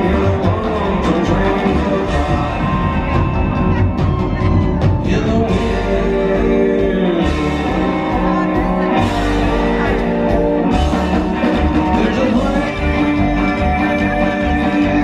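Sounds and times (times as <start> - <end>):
man singing: 0.0 - 3.7, 4.8 - 10.4, 11.0 - 15.0
rockabilly band playing: 0.0 - 15.0.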